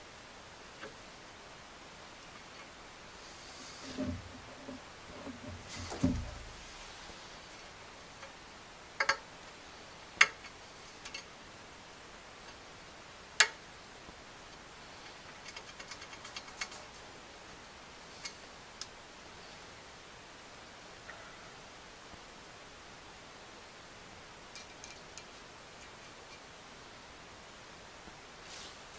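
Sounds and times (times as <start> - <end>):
small metallic ticks: 9.0 - 9.2, 10.2 - 11.3, 13.4 - 13.6, 14.5 - 17.0, 18.2 - 18.9, 24.5 - 26.4.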